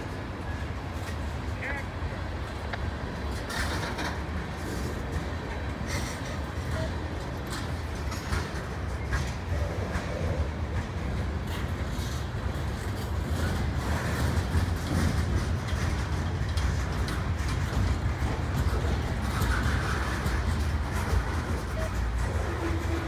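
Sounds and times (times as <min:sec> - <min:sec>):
freight train rolling past: 0:00.0 - 0:23.0.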